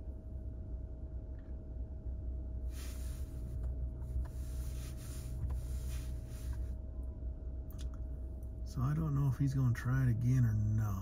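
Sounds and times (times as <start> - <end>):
vehicle engine idling: 2.6 - 11.0.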